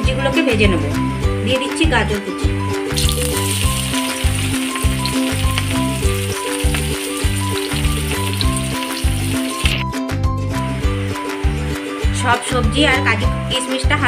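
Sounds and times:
background music with steady beat: 0.0 - 14.0
carrots sizzling in hot oil: 2.9 - 9.8.

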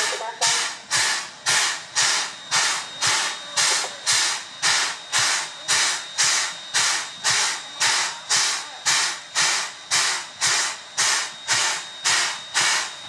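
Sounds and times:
steam locomotive chuffing: 0.0 - 13.0.

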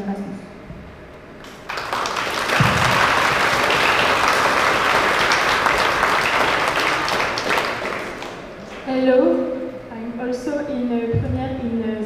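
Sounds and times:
audience applauding: 1.4 - 8.7
low thump: 2.6 - 3.0.

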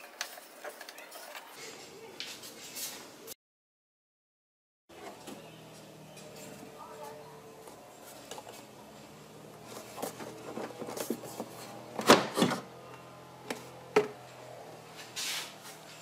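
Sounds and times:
short scrape: 15.0 - 15.8.

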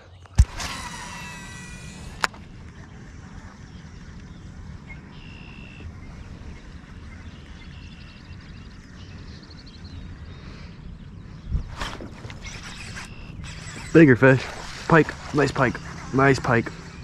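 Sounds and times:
wind rumble on camera mic: 2.3 - 13.9.

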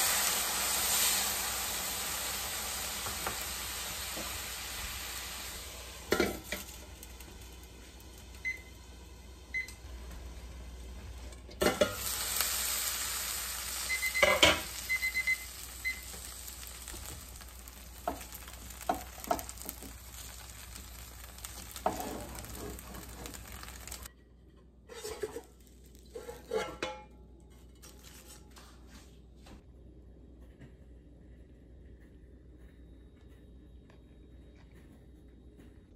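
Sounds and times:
dumplings sizzling in frying pan: 0.0 - 24.1.

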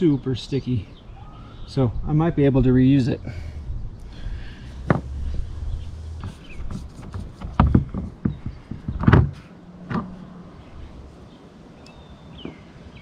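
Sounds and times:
low steady rumble: 2.6 - 8.2.

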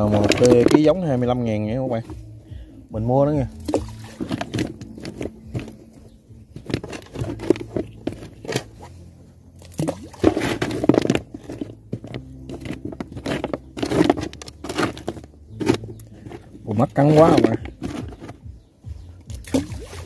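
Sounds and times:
clam shells clacking and grinding: 0.0 - 1.1, 3.6 - 8.8, 9.7 - 18.4.

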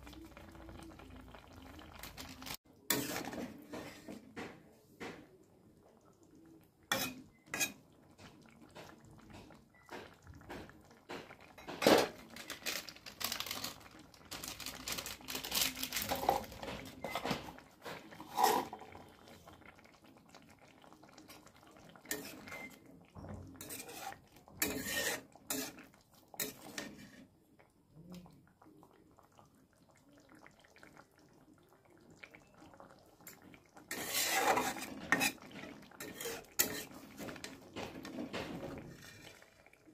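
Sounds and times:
utensils clattering against pots: 1.8 - 5.2, 6.9 - 19.6, 22.0 - 27.3, 33.3 - 39.5.

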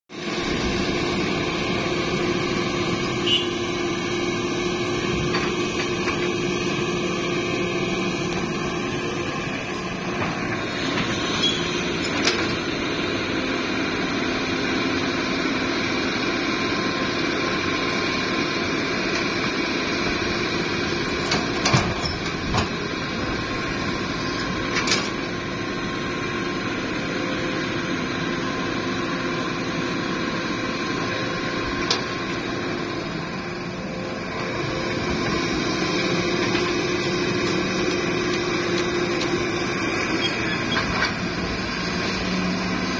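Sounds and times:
excavator diesel engine running: 0.1 - 42.9.

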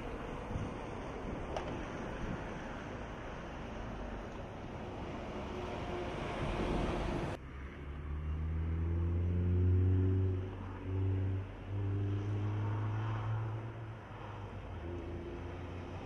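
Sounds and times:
wind rush: 4.6 - 7.4.

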